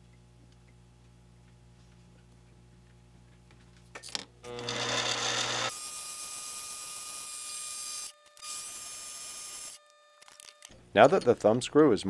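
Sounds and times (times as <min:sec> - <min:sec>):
metal lathe motor whine: 0:04.5 - 0:05.8.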